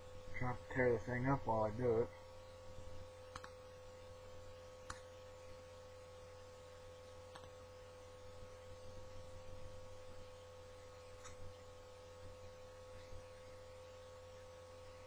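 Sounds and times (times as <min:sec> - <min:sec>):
electrical hum: 0:00.0 - 0:15.0
faint sharp clicks: 0:03.3 - 0:03.6, 0:04.8 - 0:05.1.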